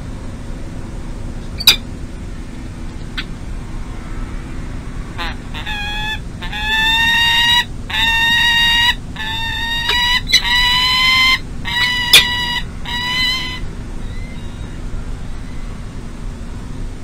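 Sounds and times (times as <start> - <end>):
low hum of city noise: 0.0 - 17.0
falcon calling: 5.2 - 14.8.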